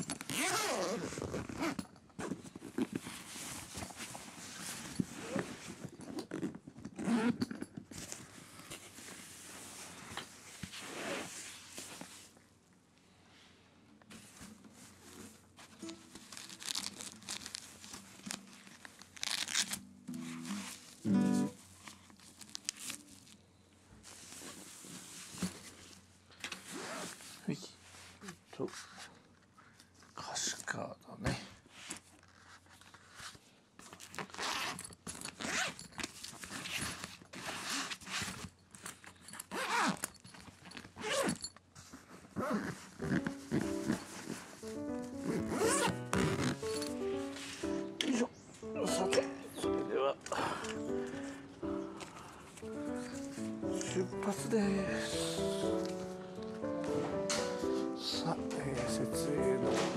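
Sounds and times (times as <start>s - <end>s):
hook-and-loop strap ripping: 0.0s - 3.1s, 6.0s - 8.1s, 15.8s - 20.8s, 33.8s - 41.6s, 45.2s - 47.3s
zipper pulled closed on gig bag: 0.0s - 3.7s, 4.9s - 8.8s, 19.2s - 20.8s, 34.0s - 38.5s, 39.4s - 40.2s, 40.8s - 41.4s, 42.2s - 47.3s
gig bag fabric rustling: 14.2s - 23.4s, 39.1s - 47.9s.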